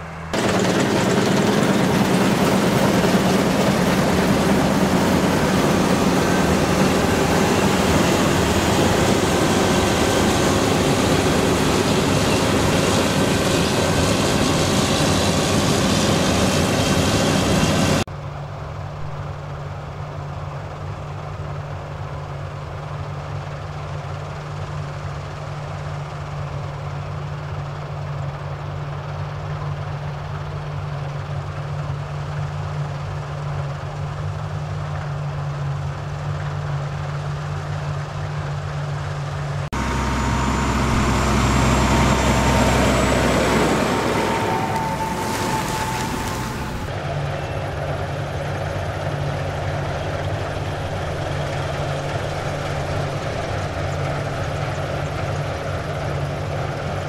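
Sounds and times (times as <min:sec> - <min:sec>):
high whine: 0:00.0 - 0:18.1, 0:39.7 - 0:51.2
tractor rumbling past: 0:00.0 - 0:18.1, 0:34.8 - 0:57.0
combine harvester threshing: 0:00.2 - 0:18.0, 0:39.8 - 0:57.0.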